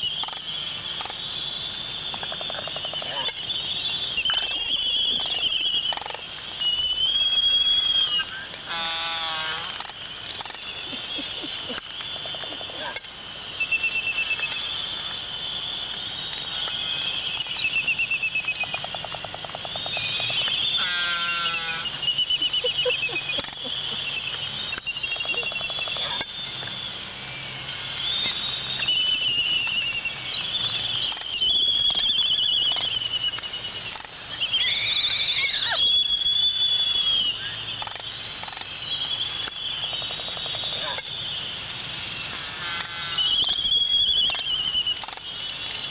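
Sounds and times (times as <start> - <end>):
albatross squealing whistles: 0.0 - 9.7, 19.7 - 27.0, 28.0 - 37.9, 38.5 - 45.9
rattling whinny-like calls: 0.0 - 45.9.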